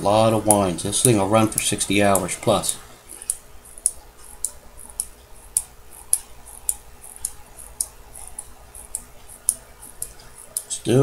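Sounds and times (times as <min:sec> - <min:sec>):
watch winding clicks: 0:03.1 - 0:10.7.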